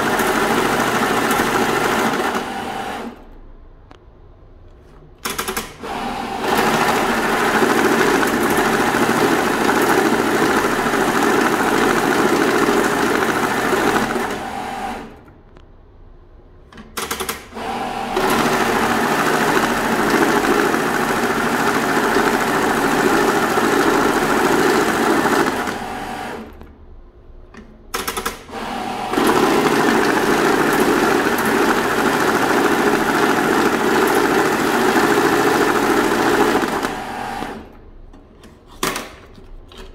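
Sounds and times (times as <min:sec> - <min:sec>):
banknote counting machine whirring: 0:00.0 - 0:03.3, 0:05.8 - 0:15.2, 0:17.4 - 0:26.6, 0:28.6 - 0:37.7.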